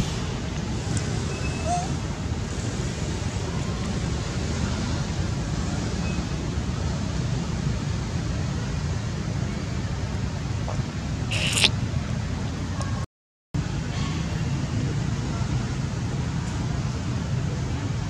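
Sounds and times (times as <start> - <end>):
faint short chirp: 11.3 - 11.7.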